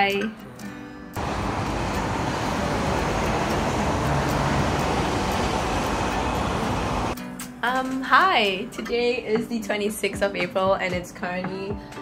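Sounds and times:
road traffic noise: 1.2 - 7.2.

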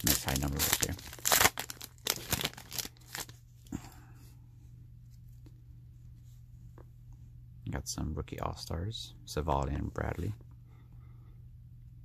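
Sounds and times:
wrapper crinkling and tearing: 0.0 - 3.4
faint steady hum: 0.0 - 12.0.

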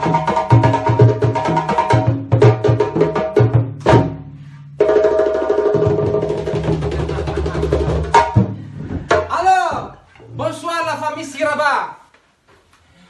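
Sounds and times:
hand drums playing a rhythm: 0.0 - 4.2, 4.8 - 9.3.

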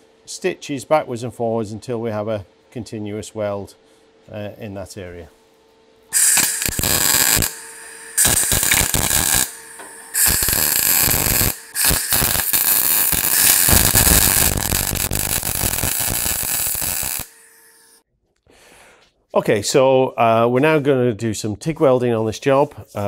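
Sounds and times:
welding arc crackling and buzzing: 6.2 - 18.0.

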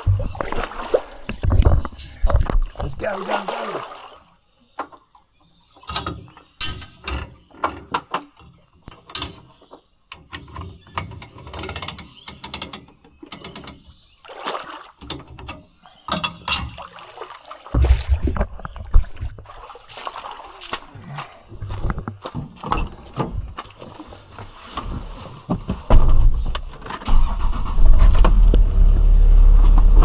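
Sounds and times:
loud low rumble: 27.7 - 30.0.

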